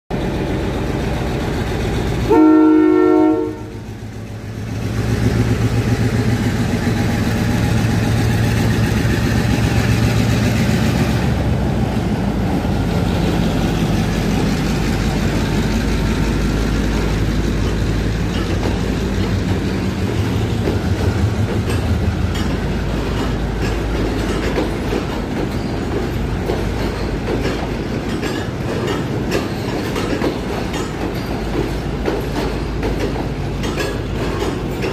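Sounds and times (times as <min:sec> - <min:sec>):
locomotive engine rumble: 0:00.1 - 0:34.9
train carriages clickety-clack: 0:00.1 - 0:34.9
locomotive horn blast: 0:02.3 - 0:03.8.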